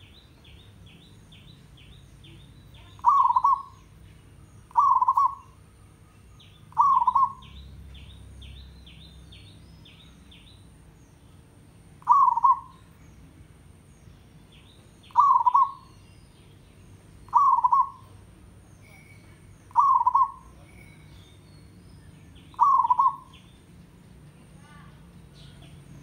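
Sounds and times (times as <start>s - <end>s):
small bird chirping: 0.0s - 26.0s
dove cooing: 2.9s - 3.8s, 4.7s - 6.0s, 6.7s - 7.5s, 12.0s - 12.9s, 15.1s - 16.0s, 17.3s - 18.2s, 19.7s - 20.6s, 22.5s - 23.4s.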